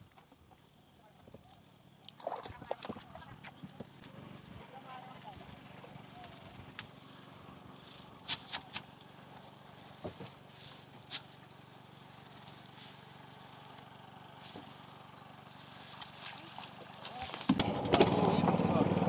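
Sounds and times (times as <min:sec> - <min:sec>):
distant motor drone: 0:03.0 - 0:19.0
net and rope clicking in canoe: 0:15.9 - 0:17.6.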